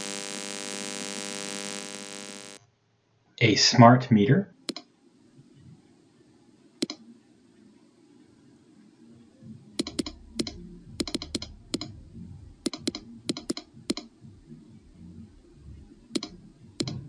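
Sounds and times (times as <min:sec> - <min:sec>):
rf meter clicks: 0:04.6 - 0:04.9, 0:06.8 - 0:07.0, 0:09.8 - 0:12.0, 0:12.6 - 0:14.1, 0:16.1 - 0:17.0
low rumble: 0:09.4 - 0:17.0.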